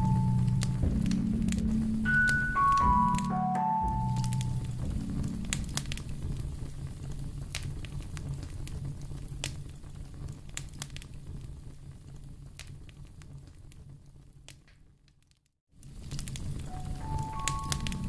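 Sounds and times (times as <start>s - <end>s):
low steady rumble: 0.0s - 14.1s
wood fire crackling: 0.0s - 18.0s.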